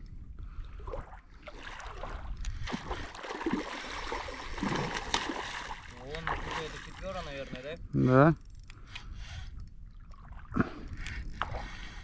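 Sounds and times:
fish thrashing and splashing in water: 1.4 - 7.0.

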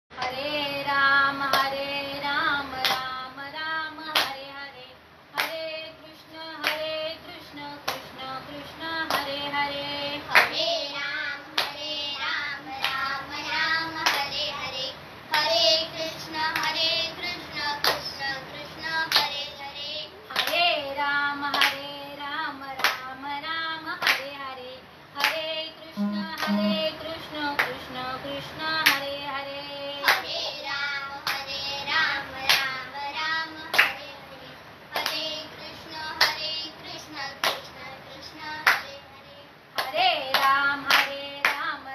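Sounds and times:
woman singing unaccompanied: 0.2 - 41.9
slow hand claps: 2.8 - 3.1, 4.1 - 4.4, 5.4 - 5.6, 7.8 - 8.1, 9.1 - 9.4, 14.0 - 14.3, 21.5 - 21.9, 22.8 - 23.1, 24.0 - 24.3, 26.0 - 26.8, 39.8 - 41.7.

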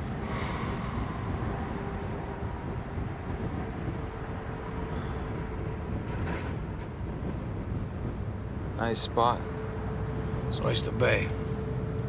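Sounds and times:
car engine rumble: 0.0 - 8.8
road noise: 0.0 - 12.0.

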